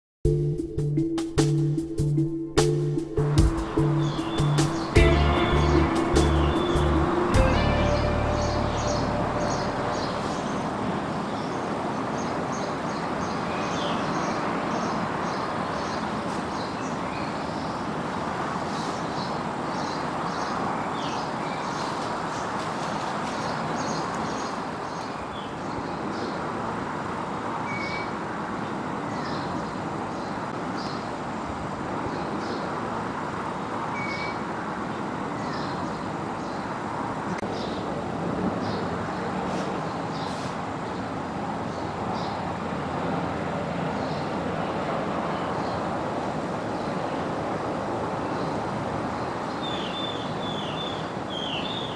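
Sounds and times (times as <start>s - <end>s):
distant motorway traffic hum: 0.3s - 51.9s
small birds chirping: 3.5s - 26.5s, 34.0s - 36.8s, 38.6s - 42.4s, 48.3s - 51.9s.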